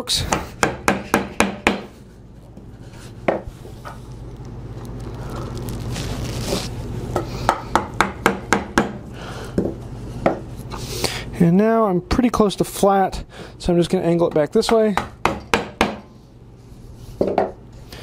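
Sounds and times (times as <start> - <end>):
mallet striking chisel: 14.7 - 16.0.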